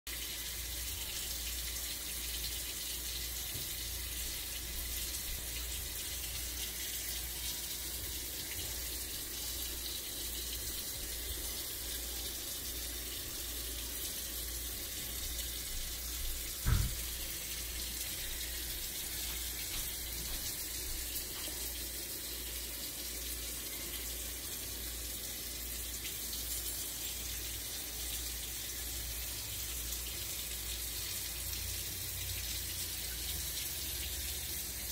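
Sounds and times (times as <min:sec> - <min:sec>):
thump: 0:16.6 - 0:17.1.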